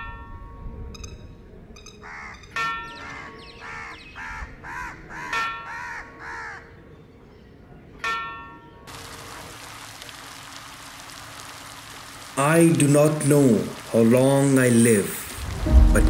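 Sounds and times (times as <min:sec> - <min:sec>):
crow cawing: 0:02.0 - 0:06.7
rain hissing: 0:08.9 - 0:16.0.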